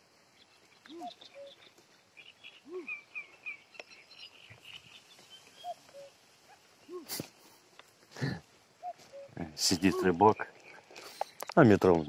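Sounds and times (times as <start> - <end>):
small birds chirping: 0.0 - 12.0
cuckoo calling: 0.6 - 7.7, 8.7 - 12.0
low arched call: 2.6 - 3.3, 6.8 - 7.4, 8.8 - 10.2.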